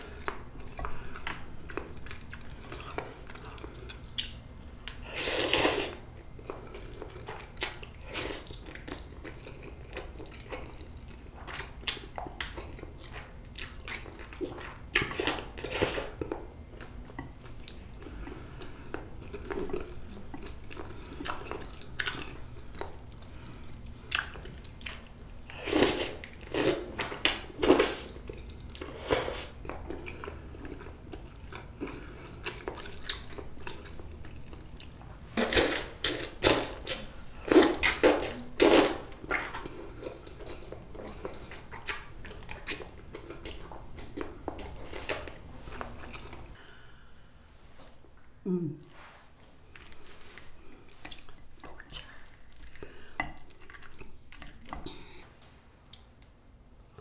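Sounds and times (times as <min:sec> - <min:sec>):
chewing: 0:00.0 - 0:46.8, 0:49.7 - 0:55.2.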